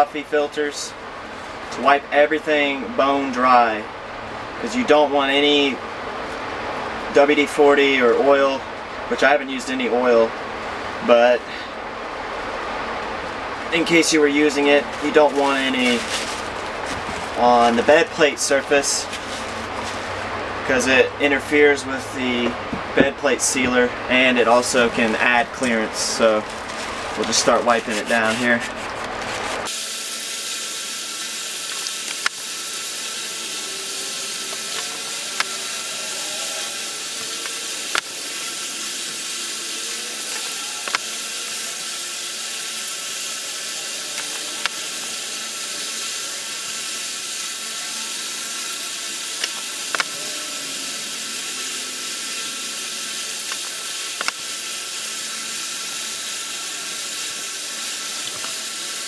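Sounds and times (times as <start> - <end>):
steady hiss: 13.7 - 22.5, 29.6 - 59.0
gloved hands rubbing: 14.9 - 17.4, 24.7 - 29.7.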